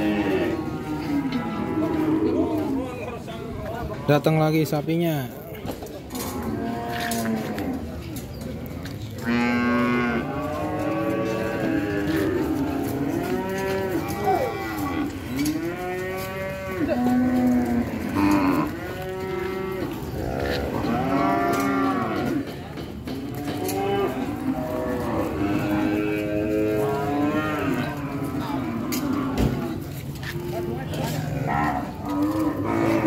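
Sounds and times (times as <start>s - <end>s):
cattle mooing: 9.2s - 22.5s, 23.4s - 33.0s.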